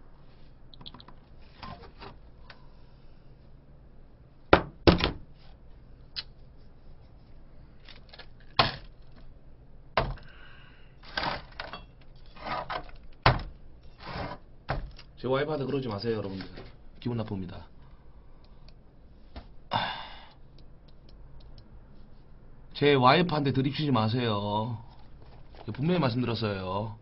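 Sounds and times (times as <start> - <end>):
bottles and cups knocking on table: 4.5 - 5.2.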